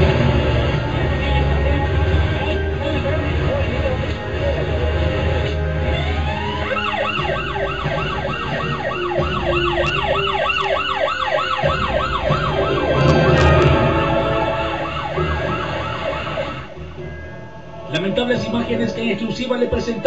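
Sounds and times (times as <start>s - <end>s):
electronic siren yelping: 5.8s - 16.8s.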